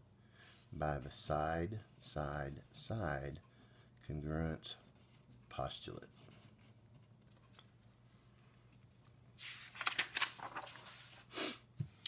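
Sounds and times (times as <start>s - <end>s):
paper sheets rustling and sliding: 9.4s - 12.0s.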